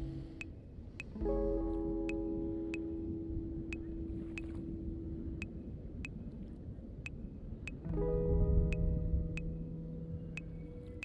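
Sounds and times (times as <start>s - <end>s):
sharp ticks: 0.4s - 1.2s, 7.1s - 7.8s.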